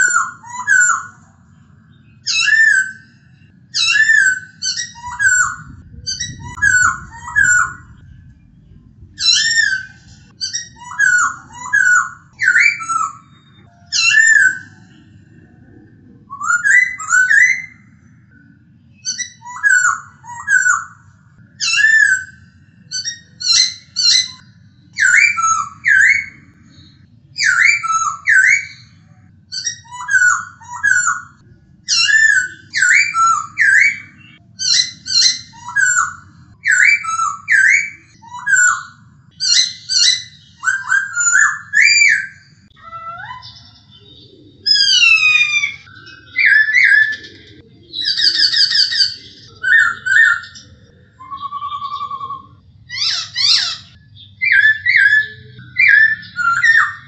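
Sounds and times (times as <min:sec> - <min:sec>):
bird singing whistled phrases: 0:00.0 - 0:01.2, 0:01.9 - 0:08.3, 0:09.2 - 0:15.5, 0:16.3 - 0:57.0
faint low hum: 0:02.8 - 0:11.8.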